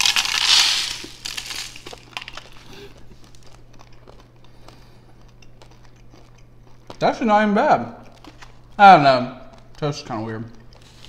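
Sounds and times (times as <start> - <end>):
crunchy toast bite: 0.0 - 7.1
crackly chewing: 0.0 - 11.0.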